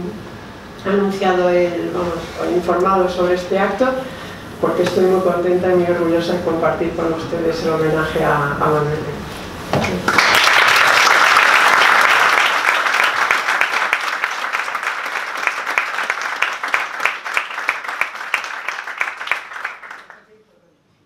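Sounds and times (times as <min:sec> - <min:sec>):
audience applauding: 0:10.1 - 0:20.3.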